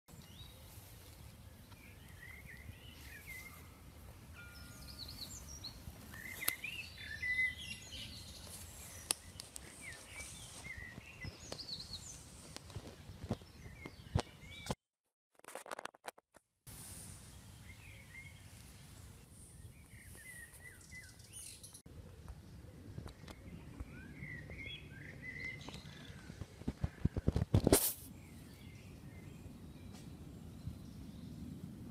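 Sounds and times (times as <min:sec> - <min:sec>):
grass rustling: 0:00.1 - 0:14.7, 0:25.7 - 0:28.2
birds chirping and singing: 0:00.1 - 0:14.8, 0:19.4 - 0:27.5.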